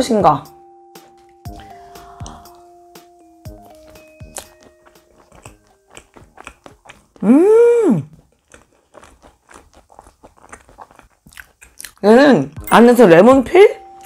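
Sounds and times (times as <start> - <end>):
soft background music: 0.0 - 7.3, 11.8 - 14.0
mouth chewing: 3.5 - 12.0.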